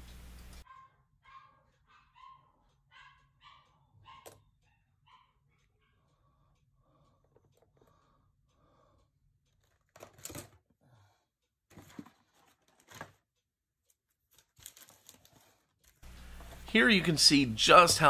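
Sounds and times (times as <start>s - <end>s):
soft handling clicks and rustles: 11.7s - 16.7s.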